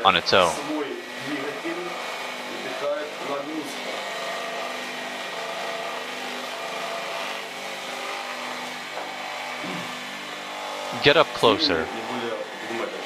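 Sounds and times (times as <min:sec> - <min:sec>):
electric motor and generator humming: 0:00.0 - 0:13.0.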